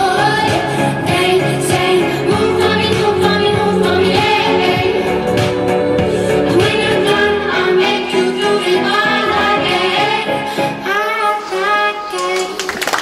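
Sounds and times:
woman singing pop song: 0.0 - 12.8.

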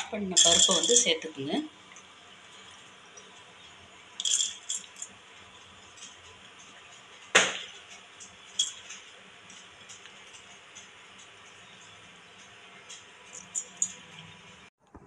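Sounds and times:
grains rattling on metal: 0.0 - 1.5, 2.3 - 14.7.

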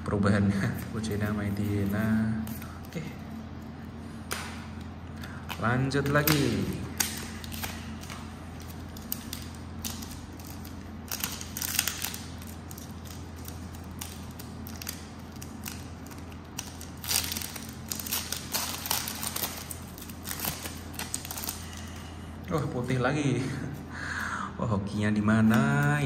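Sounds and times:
plastic and foil wrapper crinkling: 5.2 - 22.2.

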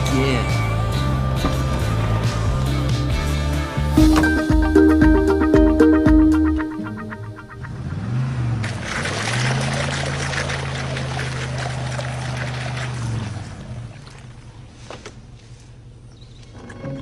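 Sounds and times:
car engine revving hard: 7.4 - 11.6
wheel spinning spraying dirt: 7.6 - 14.4.

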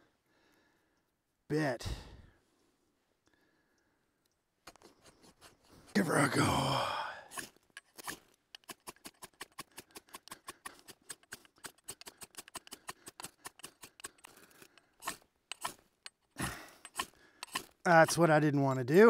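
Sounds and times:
knife scraping ferrocerium rod: 4.6 - 6.2, 7.3 - 18.3.

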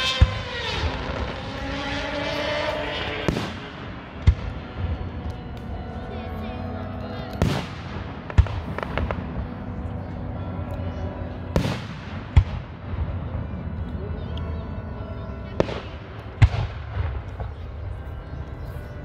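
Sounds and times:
fireworks bangs: 0.0 - 5.0, 7.4 - 9.4, 11.5 - 13.4.

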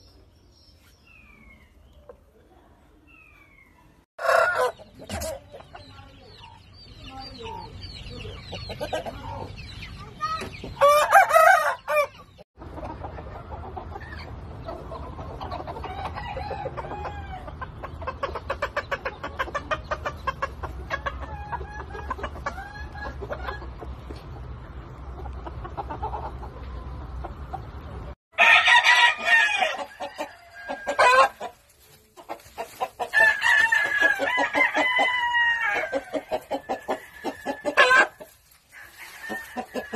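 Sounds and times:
hens clucking: 4.2 - 28.2, 28.8 - 39.9
rooster crowing: 10.8 - 12.1, 28.4 - 31.4, 33.1 - 38.1, 38.7 - 39.9.

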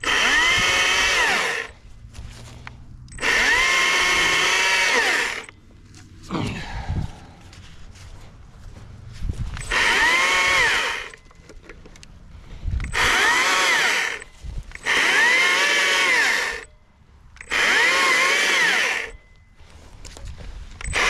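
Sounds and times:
electric chainsaw whining: 0.0 - 1.8, 3.1 - 5.6, 9.6 - 11.3, 12.8 - 16.7, 17.4 - 19.2.

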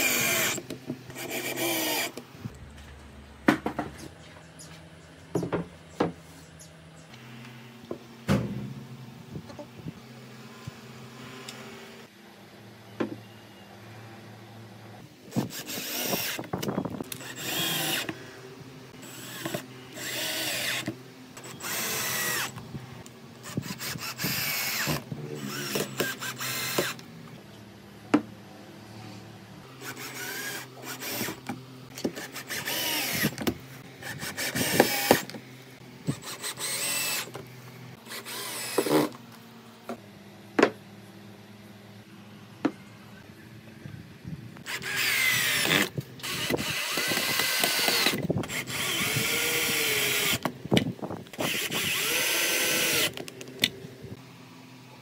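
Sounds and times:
cordless drill driving screws: 0.0 - 2.2, 15.3 - 18.2, 19.0 - 22.6, 23.4 - 27.0, 29.8 - 31.5, 32.2 - 35.4, 36.1 - 37.4, 38.1 - 39.2, 44.6 - 50.5, 51.4 - 53.2.

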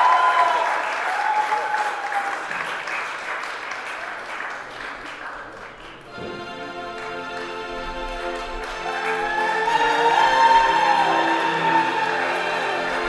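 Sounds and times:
congregation applauding: 0.0 - 13.0
instrumental music sustained notes: 6.1 - 13.0.

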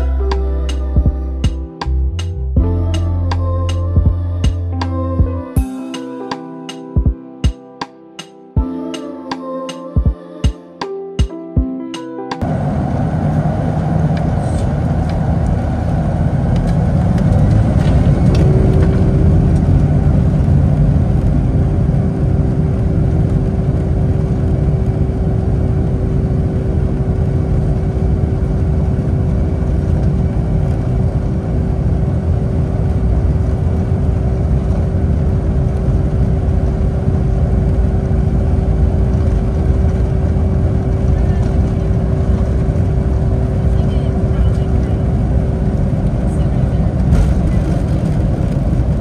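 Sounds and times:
steady droning tone: 0.0 - 5.9, 12.4 - 49.0
jet engine noise in cabin: 12.4 - 49.0.

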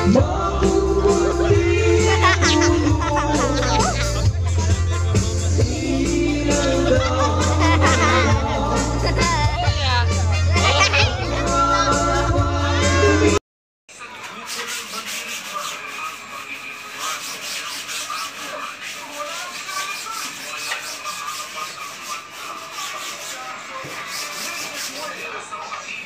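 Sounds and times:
scrubbing strokes: 14.3 - 25.5.

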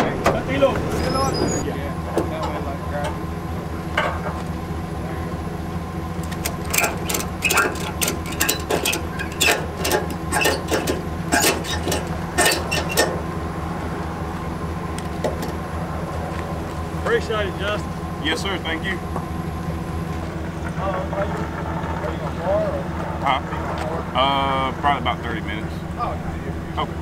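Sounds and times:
engine idling: 0.0 - 27.0
sharp clicks and clanks: 6.2 - 13.2.

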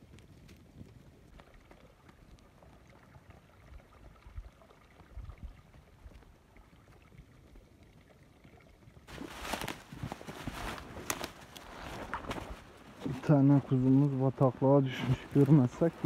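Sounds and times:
footsteps crunching through brush and snow: 9.1 - 14.2, 14.8 - 16.0.

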